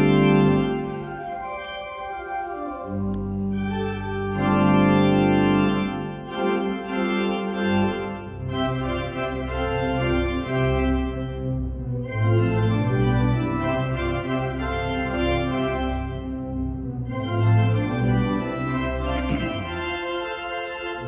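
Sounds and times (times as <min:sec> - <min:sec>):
organ playing slow chords: 0:00.0 - 0:21.0.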